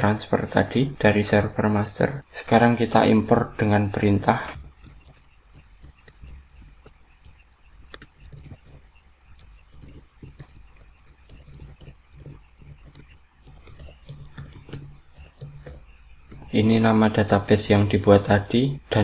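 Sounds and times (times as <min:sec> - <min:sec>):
low steady hum: 0:00.0 - 0:19.0
keyboard keys clicking: 0:04.6 - 0:16.5.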